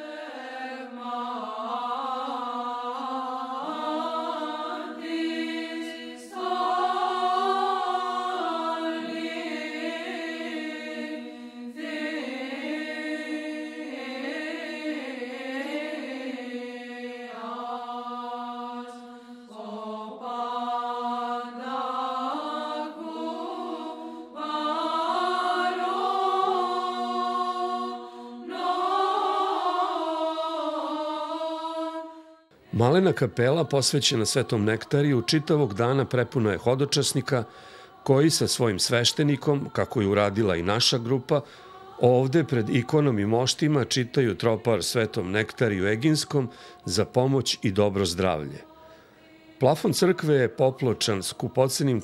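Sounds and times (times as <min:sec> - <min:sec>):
person chanting: 0:32.6 - 0:52.0.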